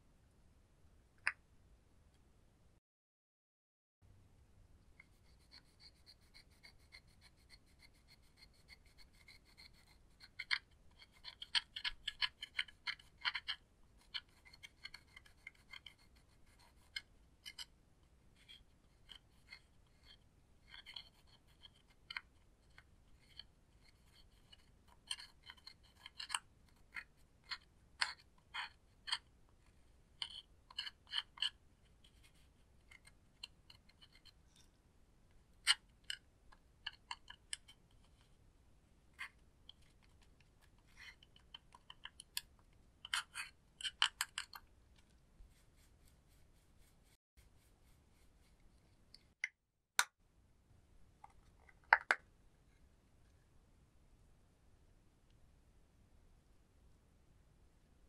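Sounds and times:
metal tool scraping eyeshadow: 5.0 - 17.7, 18.4 - 29.3, 39.2 - 44.7.

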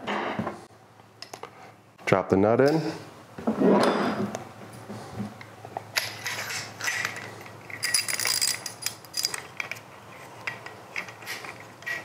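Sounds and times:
metal clinks: 7.7 - 9.4.

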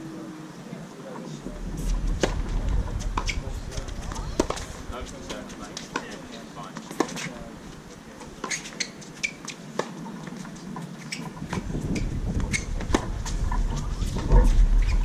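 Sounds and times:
low rumble: 1.4 - 5.3, 11.6 - 15.0
tennis balls struck and bouncing: 4.4 - 4.7, 8.4 - 11.8.

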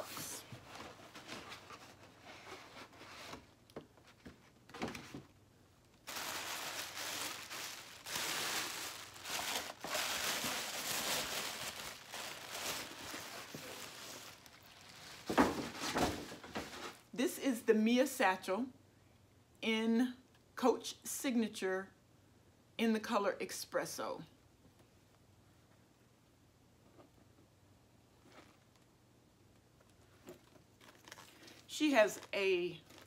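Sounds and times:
tissue paper rustling: 6.0 - 17.1, 30.4 - 33.0.

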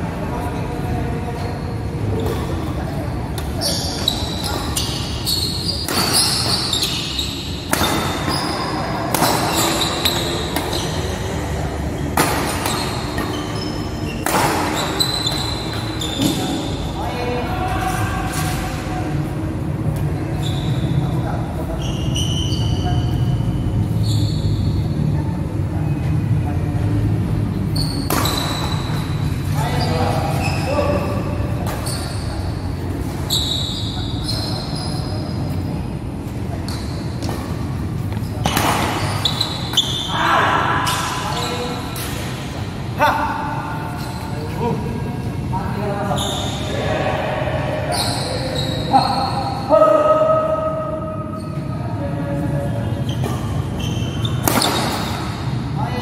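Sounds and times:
shoes squeaking on court floor: 1.3 - 16.9, 20.2 - 24.8, 27.7 - 42.7, 43.8 - 44.7, 46.0 - 46.8, 47.9 - 49.7, 51.3 - 55.6
racket hitting shuttlecock: 5.8 - 6.7, 7.7 - 11.0, 12.1 - 13.4, 14.2 - 16.4, 28.0 - 28.9, 54.4 - 55.3
murmur of voices: 28.8 - 53.8.

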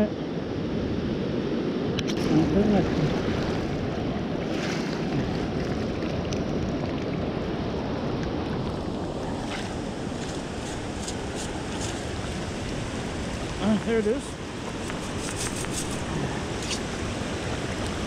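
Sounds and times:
surf washing in shallow water: 0.0 - 18.0
wind on microphone: 0.0 - 18.0.

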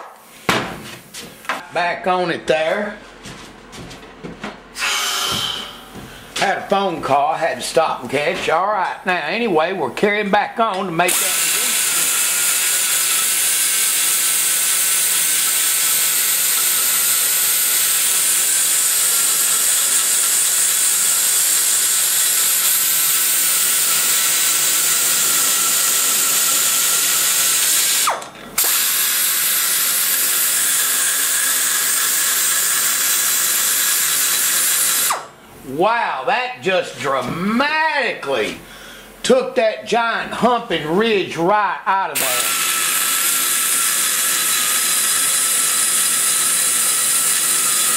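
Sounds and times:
die grinder cutting metal: 4.8 - 5.8, 11.1 - 35.3, 42.2 - 47.9.

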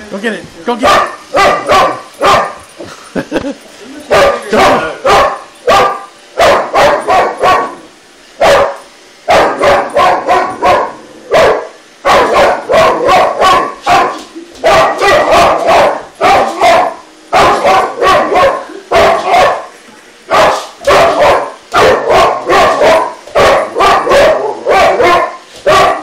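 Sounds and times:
dog barking: 0.8 - 2.6, 4.1 - 7.8, 8.4 - 19.7, 20.3 - 26.0.

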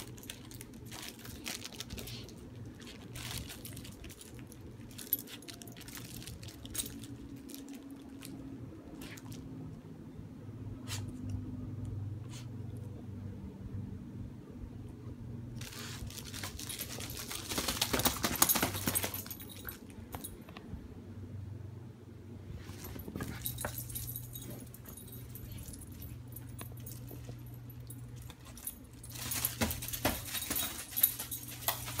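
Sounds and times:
dog collar tags jingling: 3.2 - 8.0, 15.8 - 20.4, 22.7 - 32.0.

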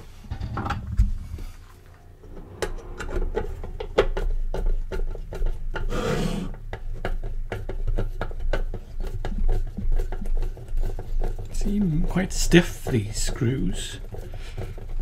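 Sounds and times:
low steady hum: 0.0 - 5.9.

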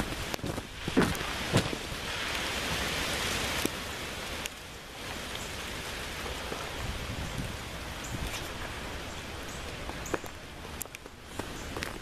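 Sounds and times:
freezing rain hissing through trees: 0.0 - 12.0.

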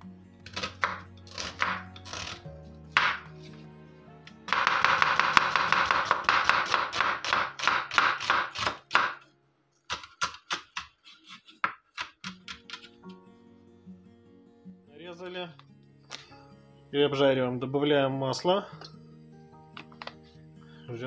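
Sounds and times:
knife chopping on wooden board: 0.5 - 3.5, 4.5 - 9.2, 9.9 - 12.9.

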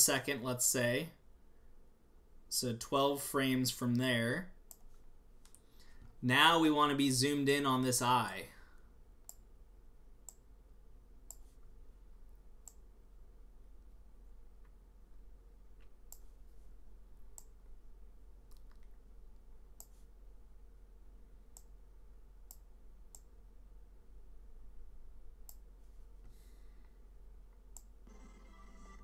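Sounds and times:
low steady hum: 0.0 - 29.0
faint mouse clicks: 9.2 - 9.5, 10.2 - 10.5, 11.3 - 11.6, 12.6 - 12.8, 15.8 - 16.3, 18.5 - 19.0, 19.8 - 20.1, 21.5 - 21.8, 25.4 - 27.9
pitched tone: 28.1 - 29.0.

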